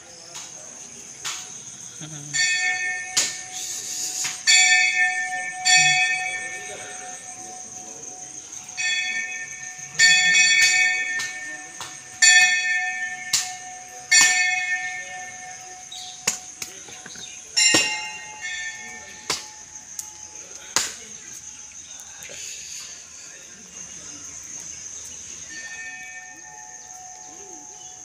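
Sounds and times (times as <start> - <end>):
temple bells ringing: 2.3 - 21.8, 25.2 - 28.0.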